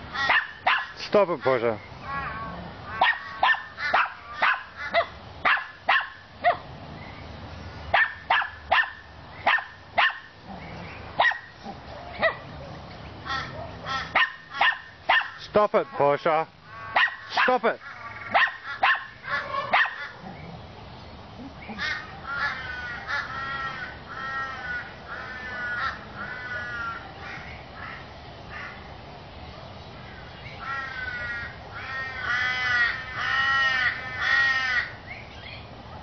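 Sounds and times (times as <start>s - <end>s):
peacock calling harsh honks: 0.1s - 1.0s, 2.0s - 5.7s, 13.2s - 20.2s, 21.7s - 28.8s, 30.6s - 35.0s
dog barking: 0.2s - 1.0s, 2.9s - 6.6s, 7.9s - 10.3s, 11.2s - 11.5s, 12.2s - 12.5s, 13.6s - 15.4s, 16.9s - 17.6s, 18.3s - 20.1s.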